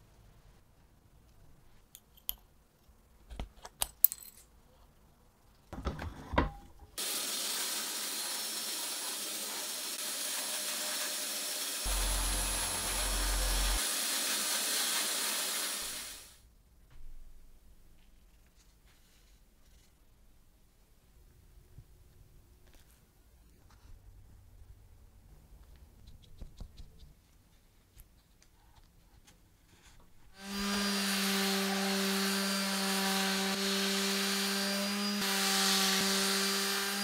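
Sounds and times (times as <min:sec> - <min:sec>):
sandblaster hissing on wood: 0:07.0 - 0:16.4, 0:30.4 - 0:37.0.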